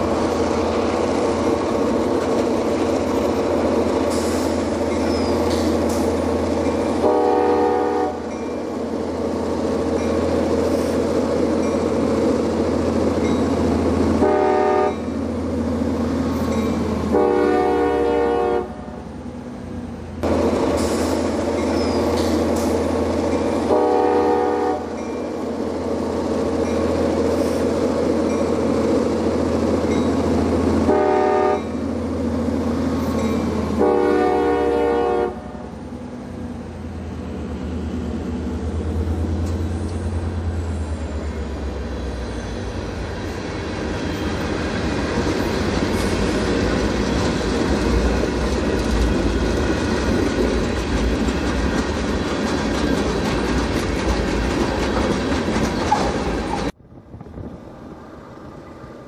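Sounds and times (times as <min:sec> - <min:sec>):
freight cars clacking on rails: 0:00.0 - 0:07.1, 0:08.2 - 0:14.2, 0:14.9 - 0:17.1, 0:20.2 - 0:23.8, 0:24.8 - 0:30.9, 0:31.6 - 0:33.8, 0:42.7 - 0:56.8
locomotive air horn blasts: 0:07.0 - 0:08.3, 0:14.2 - 0:15.1, 0:17.1 - 0:18.9, 0:23.7 - 0:24.9, 0:30.8 - 0:31.8, 0:33.8 - 0:35.6.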